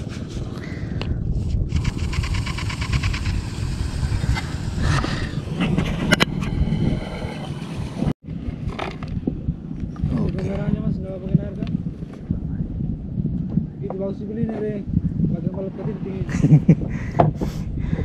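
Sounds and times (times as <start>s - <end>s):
low rumble: 0.0s - 17.0s
fishing reel spool ticking: 1.7s - 4.8s
sharp reel clicks: 1.7s - 4.8s.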